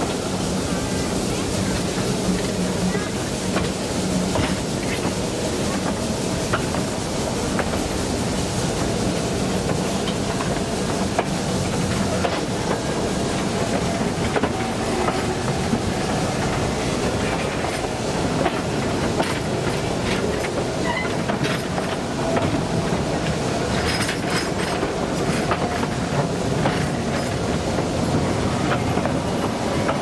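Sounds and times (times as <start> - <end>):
rail clicks and clatter: 0.0 - 30.0
train wheels rumbling on track: 0.0 - 30.0.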